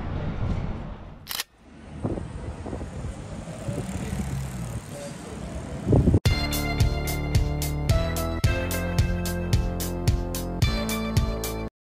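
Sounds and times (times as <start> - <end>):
road traffic hum: 0.0 - 6.2.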